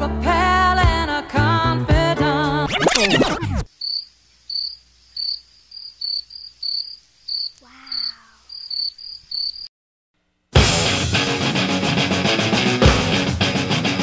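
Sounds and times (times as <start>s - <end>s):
crickets chirping: 3.7s - 9.7s.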